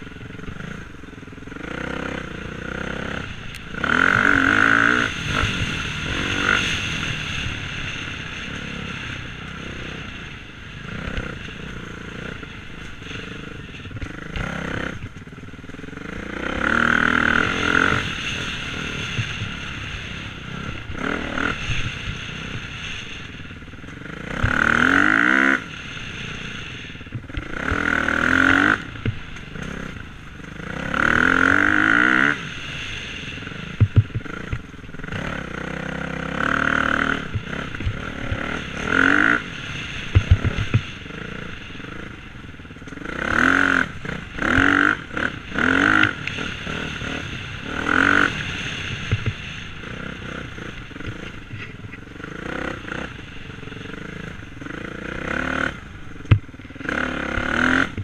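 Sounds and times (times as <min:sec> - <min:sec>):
dirt bike engine revving: 0:00.0 - 0:58.0.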